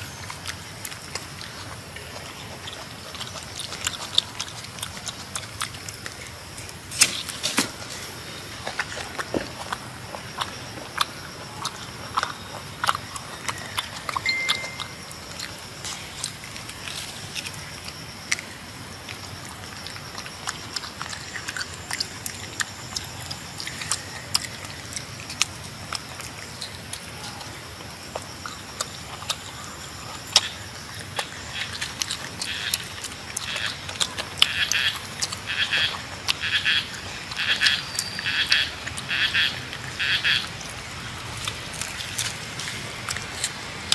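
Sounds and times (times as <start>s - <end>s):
monkey chewing fruit: 0.0s - 43.9s
fruit peel tearing: 3.3s - 8.1s, 40.6s - 43.9s
frog croaking: 17.1s - 43.9s.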